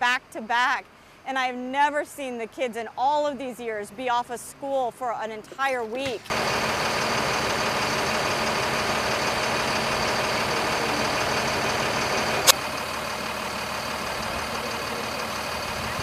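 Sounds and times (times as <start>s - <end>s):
diesel truck engine idling: 6.3s - 16.0s.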